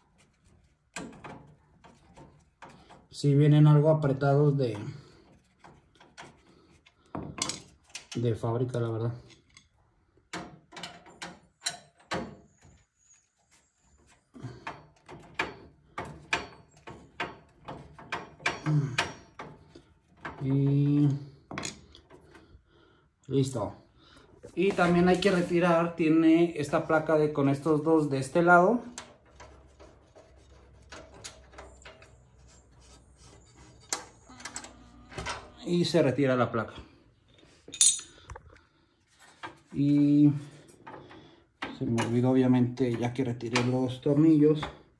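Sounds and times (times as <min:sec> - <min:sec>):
screwdriver clicking and creaking: 0:05.2 - 0:12.8, 0:28.3 - 0:35.7.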